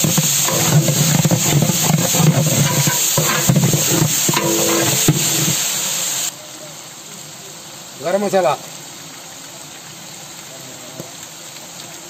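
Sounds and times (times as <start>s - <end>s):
metal ladle scraping a pot: 0.0s - 5.8s
onions sizzling in oil: 0.0s - 12.0s.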